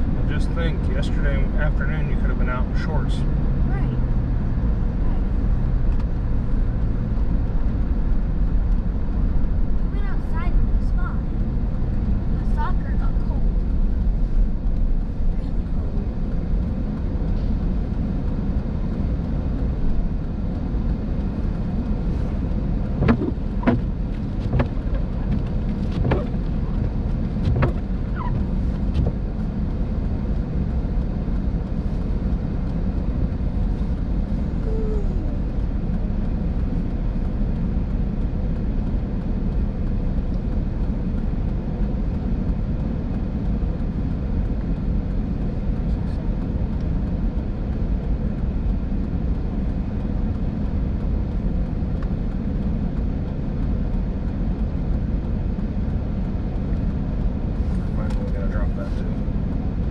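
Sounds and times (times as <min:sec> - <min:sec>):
car idling from inside cabin: 0:00.0 - 0:59.9
windshield wiper sweeping: 0:21.2 - 0:30.4.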